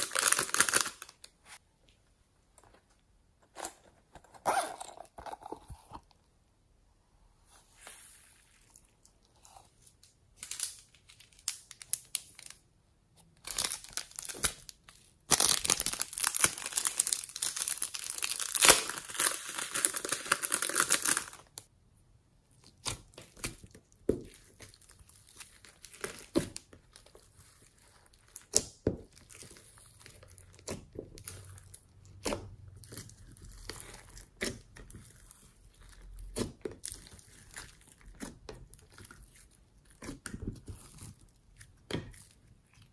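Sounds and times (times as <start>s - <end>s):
slime crackling and popping: 15.3s - 21.7s.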